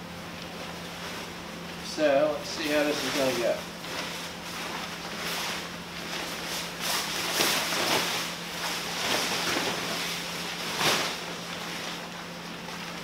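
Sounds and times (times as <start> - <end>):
tent fabric rustling: 2.5 - 12.1.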